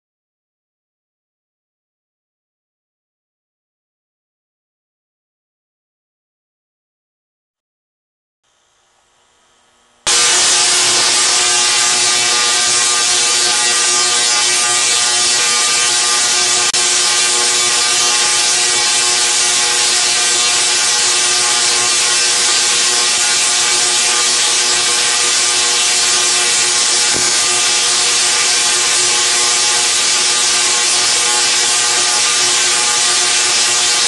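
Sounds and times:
tesla coil buzzing crackle: 0:09.8 - 0:34.0.

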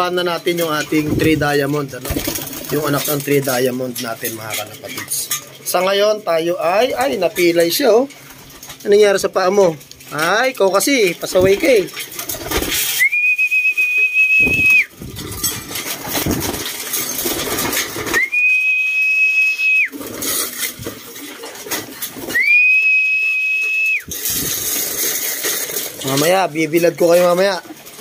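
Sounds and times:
pigeons rustling and flapping: 0:00.1 - 0:28.0
high-pitched whistle calls: 0:12.9 - 0:14.9, 0:18.2 - 0:20.0, 0:22.3 - 0:24.1.

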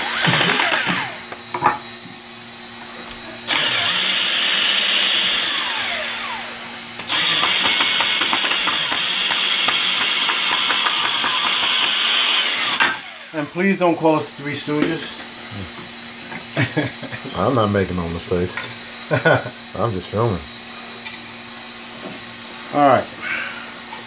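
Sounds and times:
cordless drill boring into wood: 0:00.0 - 0:01.2, 0:03.5 - 0:13.6.

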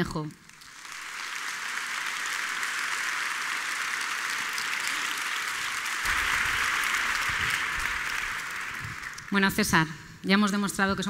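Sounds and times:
audience applauding: 0:00.4 - 0:09.9.

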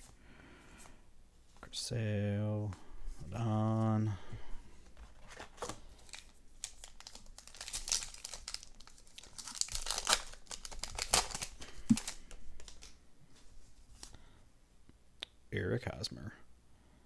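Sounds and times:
wrapper crinkling and tearing: 0:05.2 - 0:13.0.

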